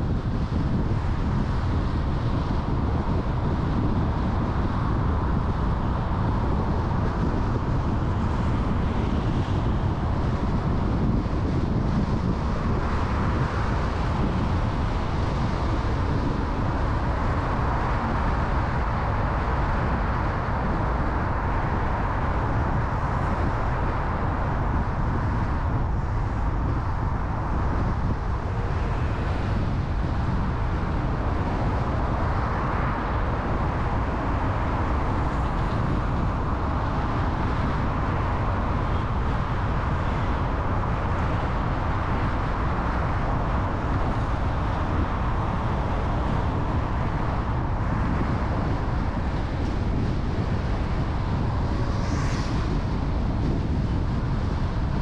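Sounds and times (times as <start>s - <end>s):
traffic noise: 0.0s - 55.0s
wind buffeting microphone: 0.0s - 55.0s.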